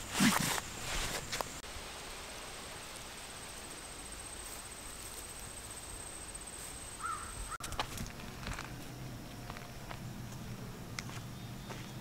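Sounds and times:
steady hiss: 0:00.0 - 0:07.6
high-pitched insect trill: 0:02.4 - 0:07.8.

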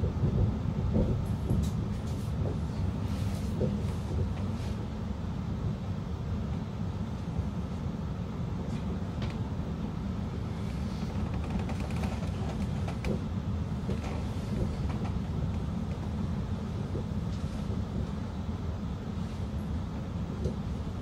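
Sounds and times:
train cabin rumble: 0:00.0 - 0:21.0.

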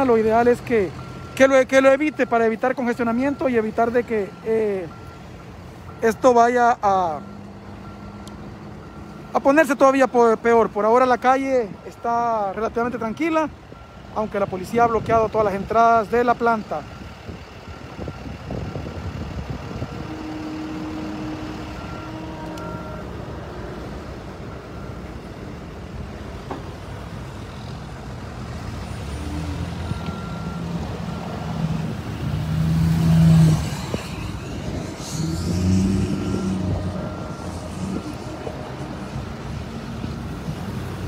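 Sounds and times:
vehicles passing on street: 0:00.0 - 0:41.0
short high beeps: 0:33.1 - 0:39.3.

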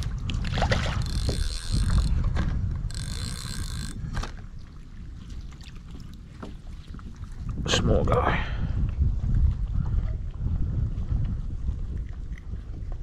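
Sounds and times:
fishing reel whirring: 0:01.0 - 0:04.4.

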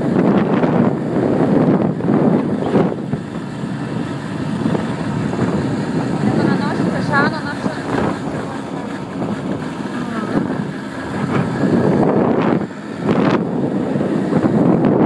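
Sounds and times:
moped engine running: 0:00.0 - 0:15.0
wind buffeting microphone: 0:00.0 - 0:15.0.

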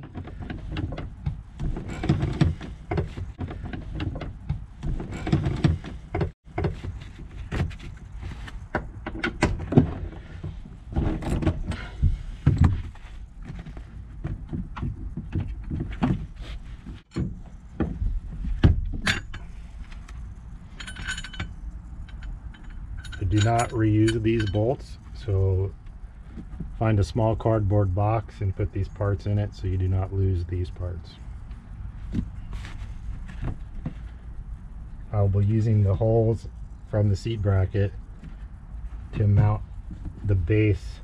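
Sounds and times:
metal clinks of tools: 0:20.6 - 0:25.3.

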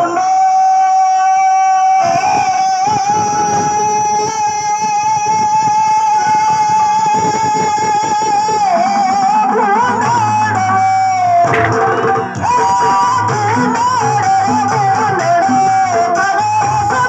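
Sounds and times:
keyboard: 0:00.0 - 0:17.0
dholak drumming: 0:02.1 - 0:17.0
sustained folk melody: 0:08.6 - 0:17.0.

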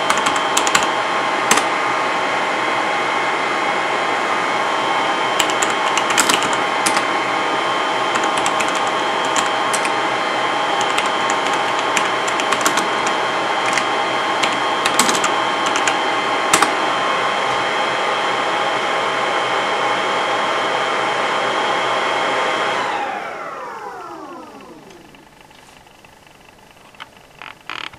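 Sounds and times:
keyboard keystrokes clicking: 0:00.0 - 0:00.9, 0:05.4 - 0:07.1, 0:08.2 - 0:09.9, 0:10.8 - 0:16.7
server cooling fans whining: 0:00.0 - 0:27.9.

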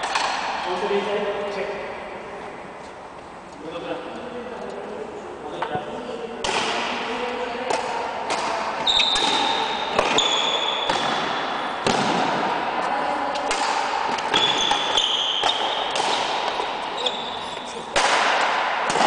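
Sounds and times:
racket striking shuttlecock: 0:00.0 - 0:00.8, 0:07.6 - 0:12.5, 0:13.3 - 0:16.9, 0:17.9 - 0:19.0
shoes squeaking on floor: 0:08.8 - 0:11.0, 0:14.1 - 0:17.9.

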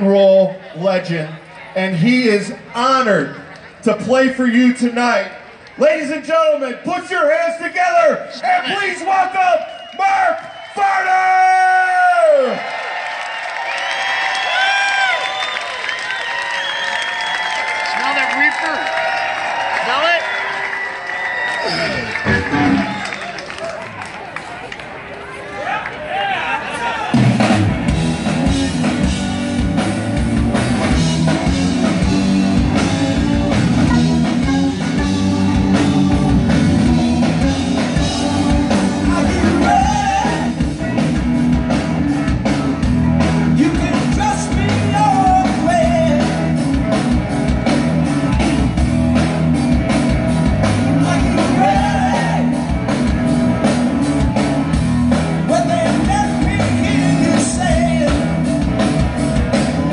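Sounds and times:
rock band playing loudly: 0:20.2 - 0:24.0, 0:26.7 - 0:59.9
drums beat: 0:21.7 - 0:23.2, 0:27.2 - 0:59.9.

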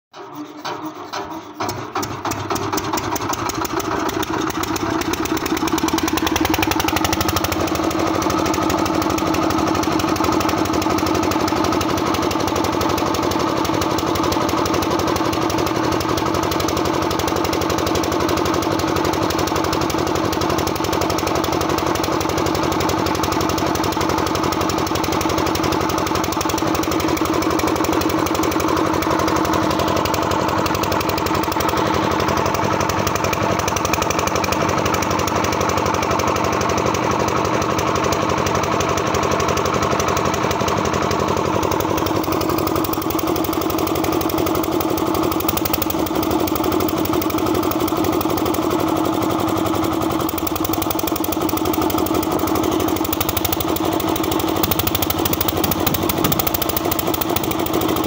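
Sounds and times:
diesel engine knocking: 0:01.0 - 0:58.0.

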